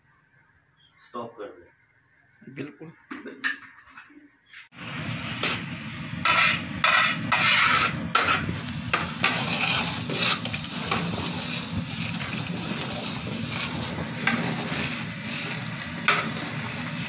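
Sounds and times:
metal ladle scraping pot: 0:06.2 - 0:17.0.

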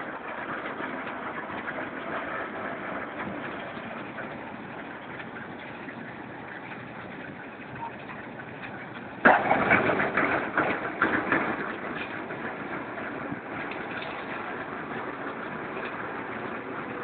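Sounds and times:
concrete mixer running: 0:00.0 - 0:17.0
aggregate pouring into hopper: 0:09.2 - 0:17.0.

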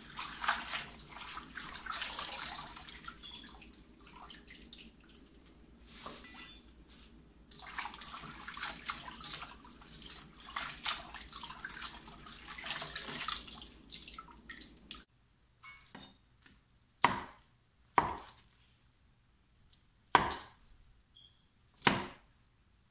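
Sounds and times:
hands splashing leaves in water: 0:00.0 - 0:03.0
cleaver striking cutting board: 0:21.8 - 0:22.2.

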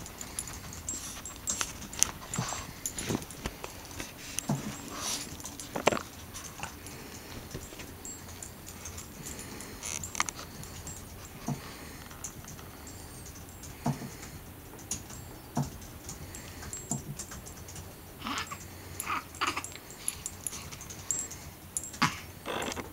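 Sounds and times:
dog sniffing: 0:00.0 - 0:13.2
bedding rustling: 0:00.0 - 0:14.2
dog collar tags clinking: 0:00.0 - 0:22.5.

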